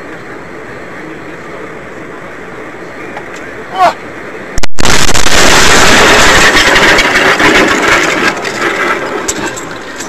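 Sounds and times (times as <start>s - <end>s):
loud car crash noise: 4.7s - 10.0s.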